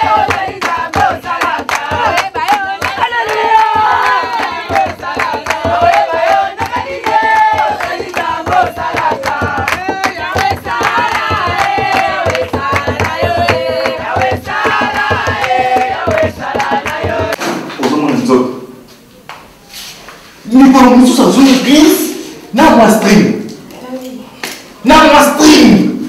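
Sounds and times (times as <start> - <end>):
fast steady claps: 0.0 - 17.4
congregation praying and chanting: 0.0 - 18.8, 19.7 - 23.6, 24.7 - 26.0.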